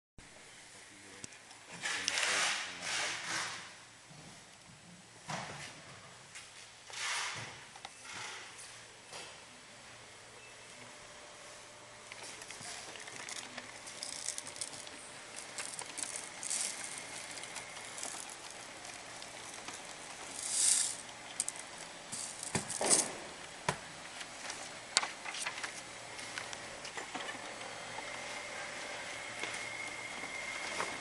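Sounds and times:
laser printer whirring and rattling: 10.8 - 31.0.

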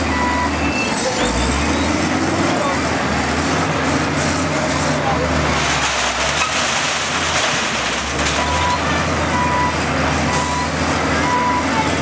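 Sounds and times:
diesel engine running: 0.0 - 12.0
reversing alarm beeps: 0.1 - 0.7, 8.5 - 11.7.

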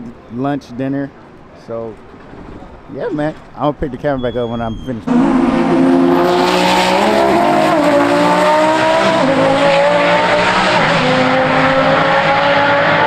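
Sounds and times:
race car engine revving: 5.1 - 13.0.

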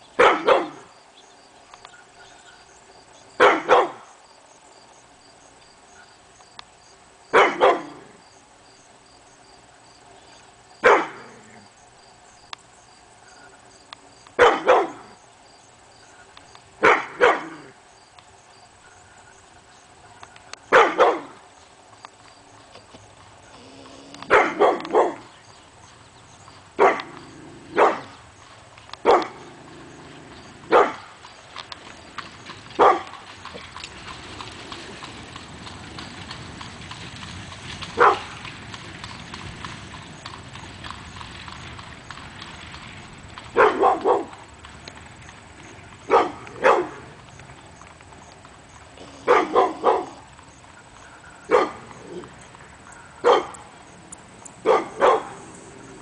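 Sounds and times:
horse hooves clip-clopping: 0.0 - 56.0
dog barking: 0.2 - 0.8, 3.4 - 4.0, 7.3 - 8.0, 10.8 - 11.4, 14.4 - 15.1, 16.8 - 17.7, 20.7 - 21.4, 24.3 - 25.3, 26.8 - 27.2, 27.8 - 28.1, 29.0 - 29.4, 30.7 - 31.1, 32.8 - 33.1, 38.0 - 38.2, 43.6 - 44.3, 46.1 - 47.0, 49.2 - 50.2, 51.5 - 52.2, 52.9 - 53.6, 54.6 - 55.4.

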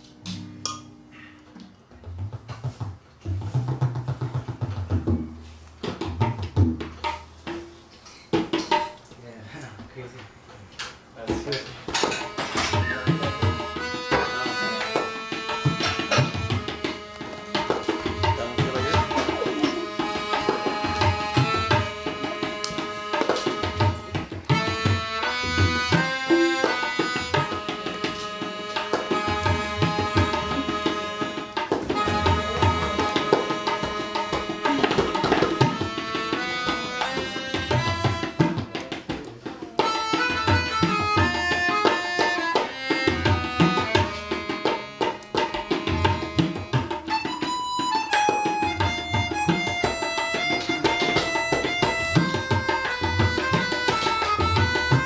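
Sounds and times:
tabla drumming: 0.0 - 1.1, 1.8 - 9.0, 11.2 - 55.0
melodica melody: 11.9 - 55.0.

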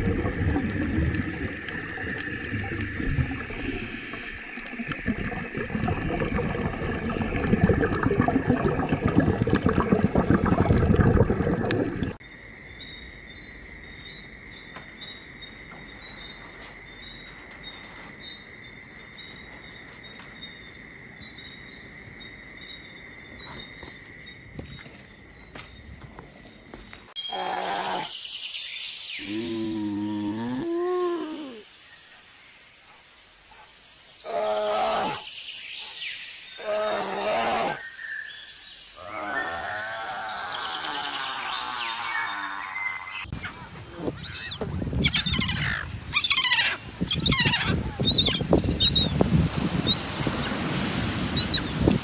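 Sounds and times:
aquarium water noise: 0.0 - 12.2, 46.4 - 52.0
insect trilling: 39.0 - 49.1.

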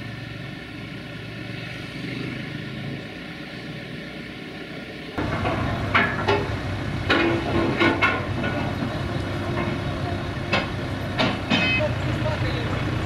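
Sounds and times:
engine running: 0.0 - 13.0
heavy steel parts clanking: 5.2 - 12.3.

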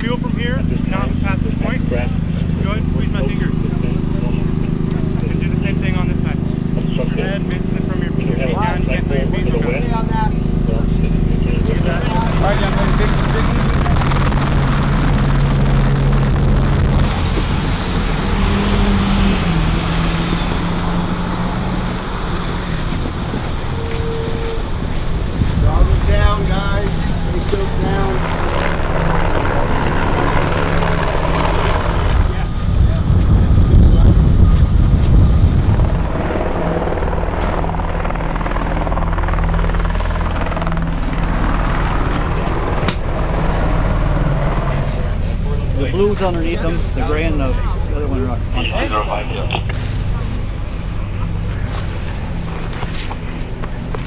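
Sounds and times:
helicopter hovering: 0.0 - 54.0
thin high whine: 22.0 - 28.6, 46.6 - 53.7.

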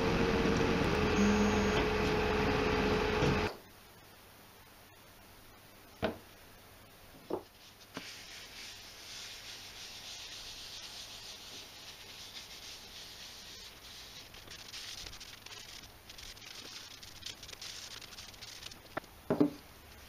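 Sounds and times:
hand rubbing oil into wood: 7.5 - 19.1.

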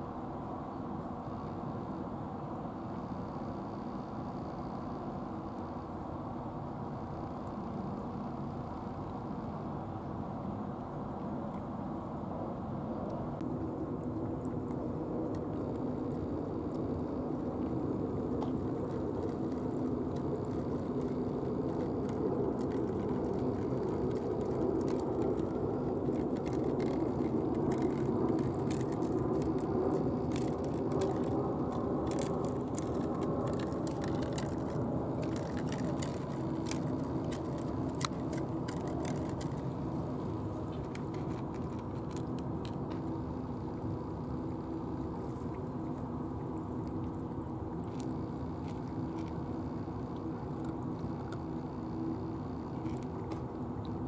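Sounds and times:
steady low rumble: 0.0 - 54.0
cats crunching dry kibble: 12.6 - 54.0.

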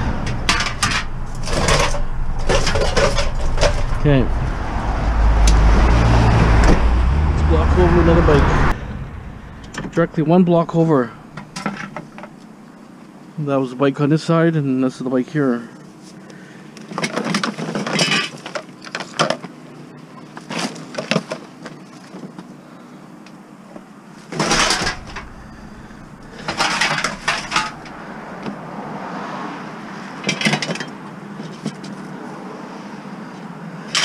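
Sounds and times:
metal bicycle clattering: 0.0 - 4.2, 24.4 - 28.0.

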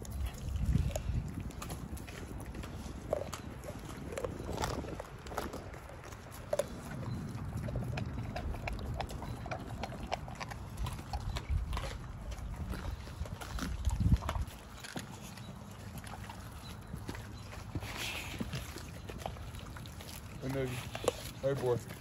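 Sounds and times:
dog chewing bones: 0.0 - 22.0.

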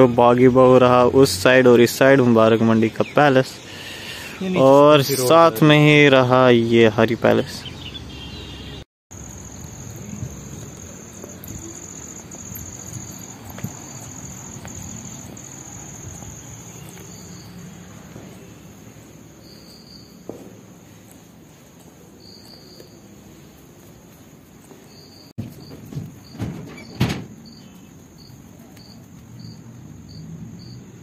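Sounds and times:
insects trilling: 9.1 - 20.4, 21.1 - 31.0.

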